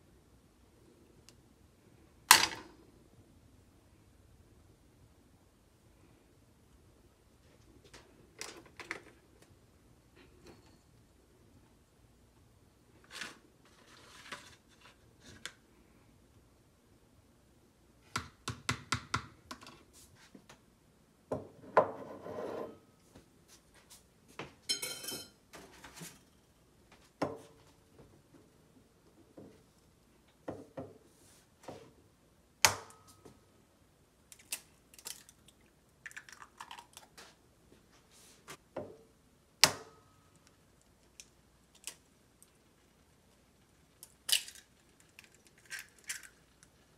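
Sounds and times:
egg cracked on bowl: 44.0s - 46.4s.

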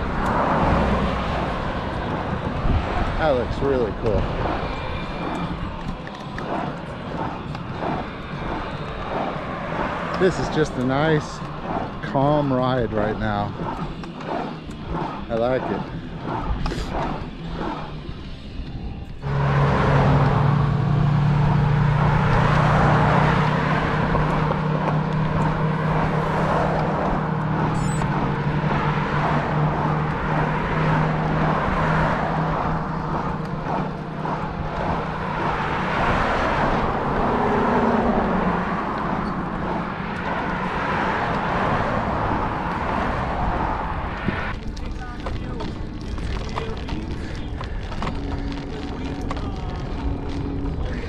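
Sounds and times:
tyre and road noise: 0.0s - 51.0s
vehicle engine droning: 0.0s - 51.0s.

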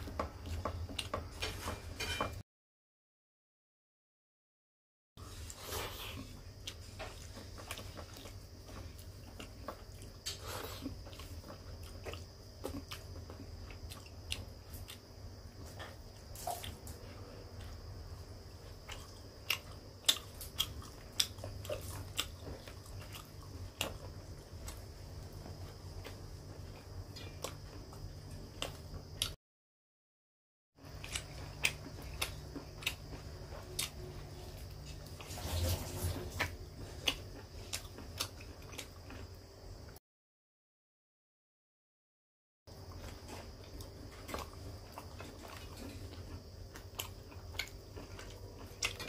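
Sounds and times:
person chewing food: 0.0s - 1.3s, 5.2s - 29.4s, 30.8s - 40.0s, 42.7s - 49.0s
steady low hum: 5.2s - 29.4s.

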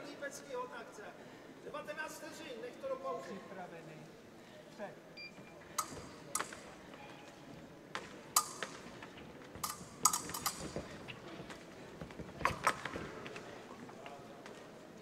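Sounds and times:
fencing blades clashing: 5.8s - 6.8s, 8.0s - 11.7s
feet stamping: 7.9s - 13.6s.

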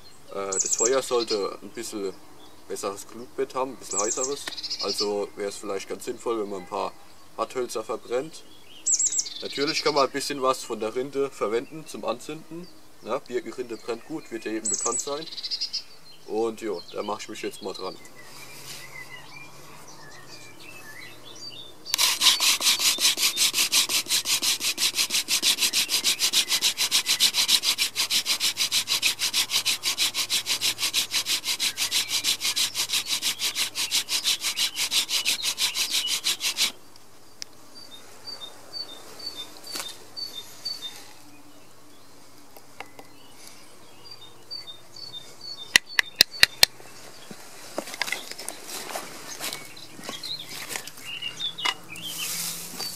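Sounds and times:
bird chirping: 0.0s - 2.7s, 3.8s - 5.4s, 8.0s - 47.4s, 48.1s - 52.9s
wooden spindle grinding on wood: 21.9s - 36.8s.

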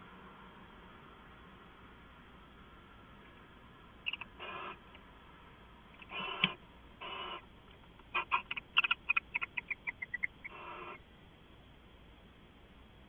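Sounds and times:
owls chittering: 4.0s - 4.8s, 6.0s - 7.5s, 8.1s - 11.0s
owls hissing calls: 4.1s - 4.8s, 6.0s - 7.5s, 8.1s - 11.0s.

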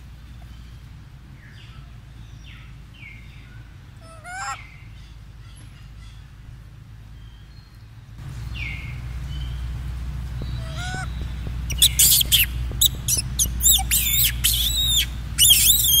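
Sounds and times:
low steady rumble: 0.0s - 16.0s
baby monkey squealing: 10.6s - 11.1s, 11.7s - 16.0s.

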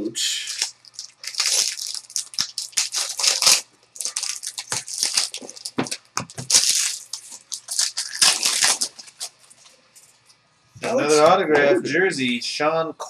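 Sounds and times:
foil wrapper crinkling and tearing: 0.4s - 9.7s.

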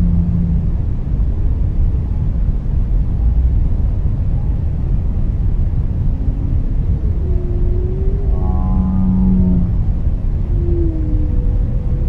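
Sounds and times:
whale calls: 0.0s - 0.8s, 5.9s - 12.0s
low rumbling noise: 0.0s - 12.0s.

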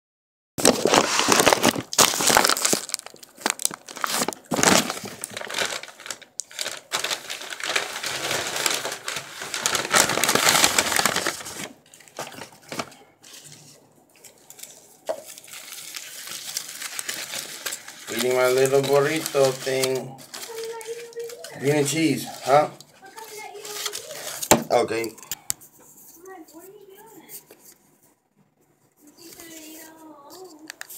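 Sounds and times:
paper bag rustling: 0.6s - 25.2s
aluminium foil crinkling: 0.6s - 27.8s, 29.0s - 30.9s.

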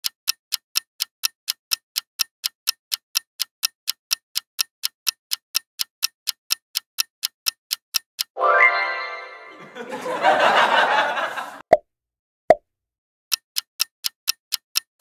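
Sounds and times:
clock ticking: 0.0s - 8.4s, 13.3s - 15.0s.

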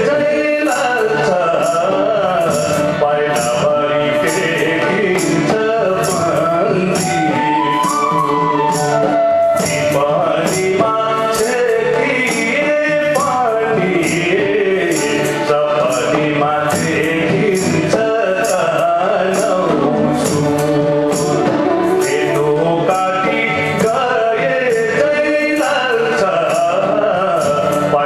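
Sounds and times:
hand percussion beat: 0.0s - 28.0s
man singing into a microphone: 0.0s - 28.0s
bamboo flute: 6.6s - 10.7s, 19.7s - 23.4s, 27.0s - 28.0s.

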